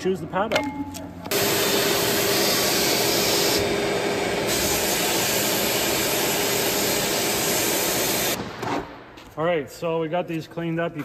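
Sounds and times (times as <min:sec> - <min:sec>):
sandblaster hissing: 0:01.3 - 0:08.4.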